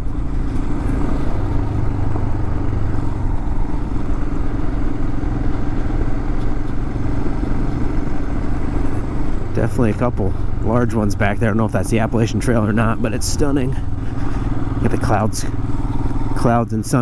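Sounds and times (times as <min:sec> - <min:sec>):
motorcycle engine cruising: 0:00.0 - 0:17.0
road noise hum: 0:00.0 - 0:17.0.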